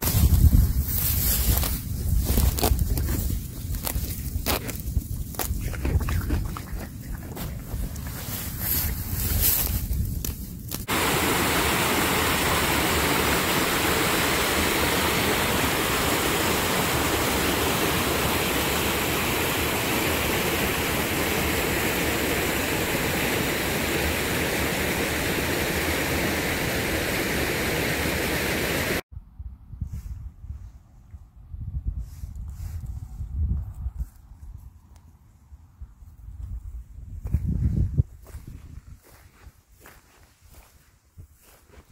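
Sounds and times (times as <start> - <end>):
stream rushing over rocks: 10.9 - 29.0.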